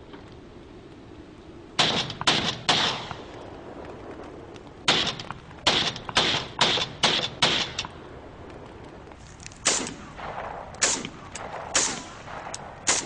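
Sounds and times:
gunshots with echo: 1.8 - 3.2, 4.9 - 7.8, 9.6 - 13.0.

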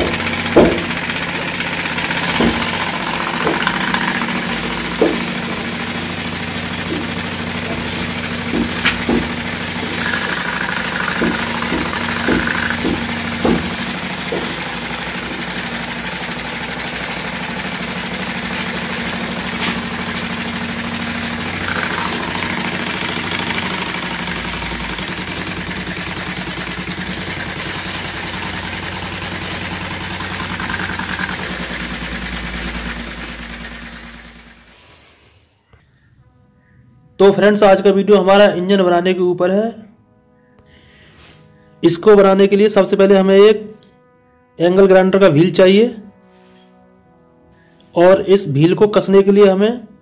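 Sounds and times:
sharp knocks: 0.0 - 6.0, 6.7 - 15.6
steam engine running: 0.0 - 35.3
steam hissing: 0.0 - 35.6.

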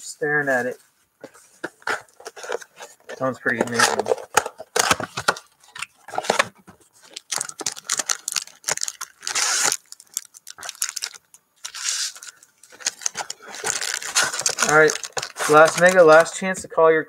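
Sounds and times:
foil packs crinkling: 1.8 - 16.4
cardboard flap tearing: 13.0 - 16.3.

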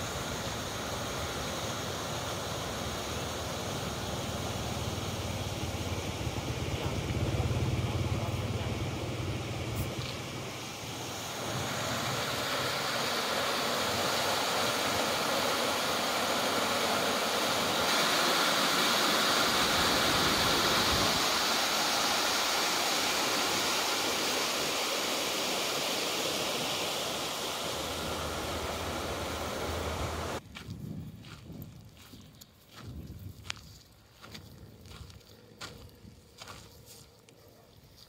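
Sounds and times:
water rushing through channel: 0.0 - 30.4.

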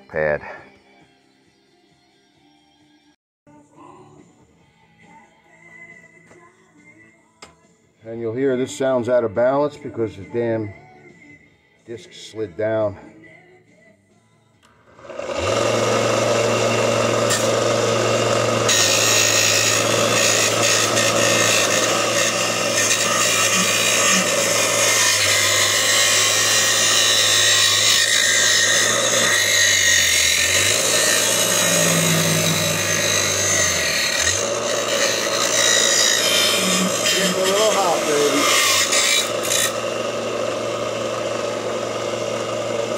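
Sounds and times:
sander motor hum: 14.9 - 42.9
person talking: 36.6 - 38.6.

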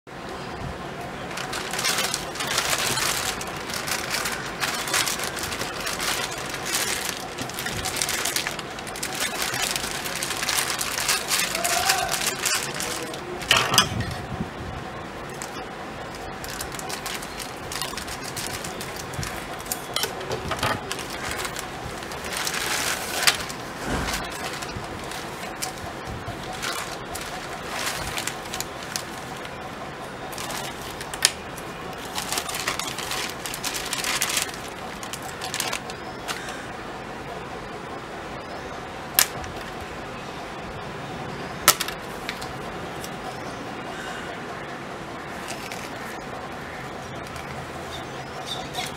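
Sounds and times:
plastic bag crinkling: 1.2 - 13.8, 15.2 - 36.6, 45.3 - 46.2.

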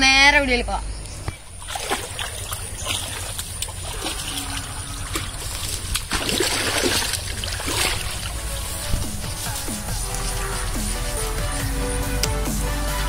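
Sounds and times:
stream water splashing: 1.3 - 11.2.

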